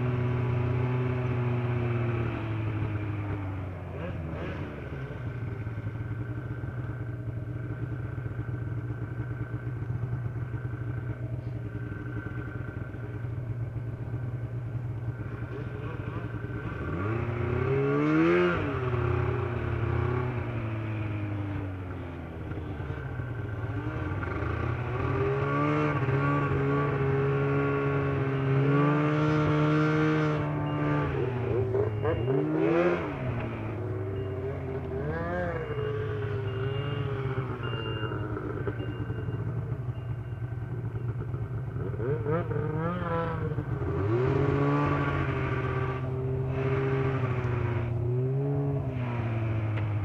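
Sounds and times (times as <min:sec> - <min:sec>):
snowmobile engine revving: 0:16.8 - 0:20.2, 0:23.8 - 0:33.5, 0:41.9 - 0:49.6.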